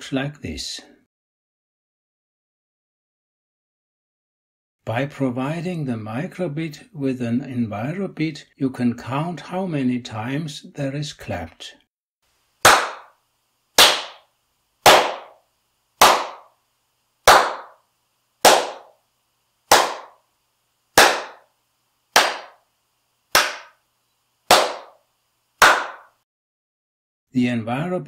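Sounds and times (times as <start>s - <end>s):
person clapping hands: 12.6s - 13.1s, 13.8s - 14.3s, 14.9s - 15.4s, 16.0s - 16.5s, 17.3s - 17.8s, 18.4s - 18.9s, 19.7s - 20.2s, 21.0s - 21.4s, 22.2s - 22.6s, 23.3s - 23.8s, 24.5s - 25.0s, 25.6s - 26.1s.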